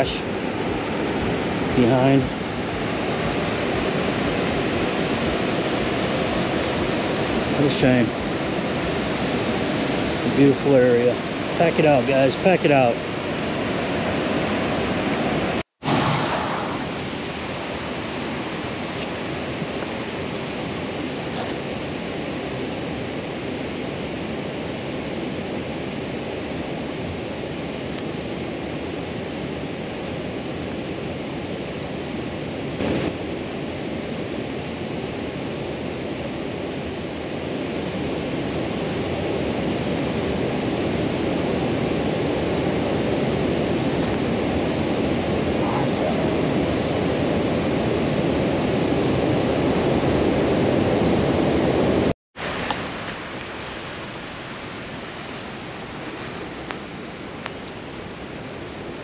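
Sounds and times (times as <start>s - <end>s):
fast-flowing river water: 0.0s - 16.2s, 16.9s - 26.8s.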